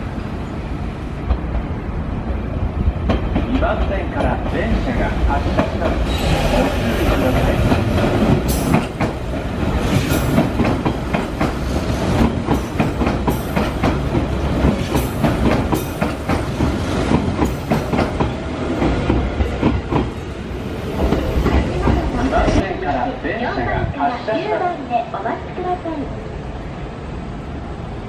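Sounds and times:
train wheels clattering over rail joints: 0:05.5 - 0:20.2.

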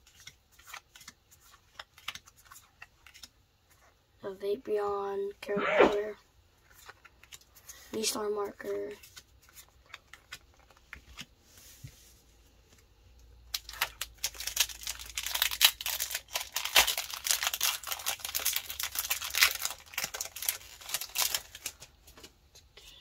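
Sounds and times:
foil wrapper crinkling: 0:13.5 - 0:21.9.

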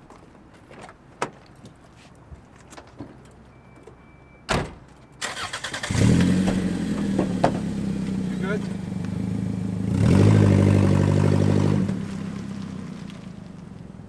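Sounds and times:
car door slamming: 0:04.5 - 0:04.9, 0:06.4 - 0:07.8
car engine starting and idling: 0:04.9 - 0:14.0.

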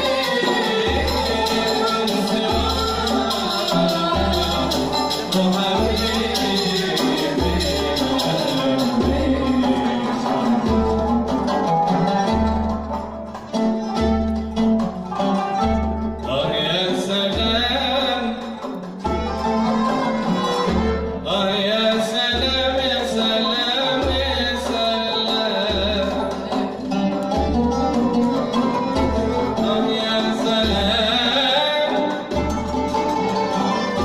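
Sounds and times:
person singing: 0:00.0 - 0:12.1, 0:28.6 - 0:32.7
frame drum beat: 0:00.0 - 0:34.0
plucked and bowed strings: 0:00.0 - 0:34.0.

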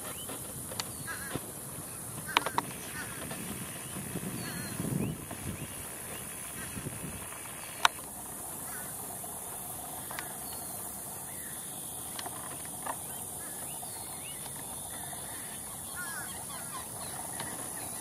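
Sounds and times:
distant bird chirps: 0:00.0 - 0:18.0
steady hiss: 0:00.0 - 0:18.0
faint clicks: 0:07.7 - 0:08.1, 0:10.0 - 0:10.7.

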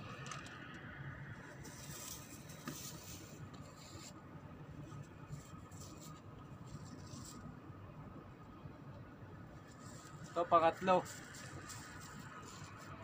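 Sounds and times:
low steady hum: 0:00.0 - 0:13.0
faint scratching and rustling: 0:01.4 - 0:07.8, 0:09.5 - 0:13.0.

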